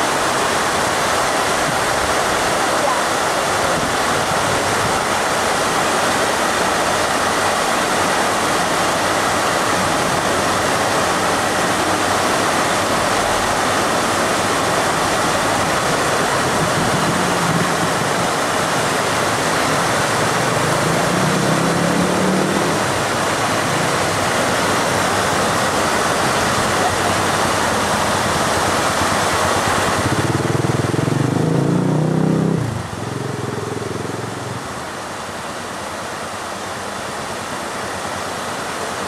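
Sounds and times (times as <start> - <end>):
water rushing along canal: 0.0 - 39.0.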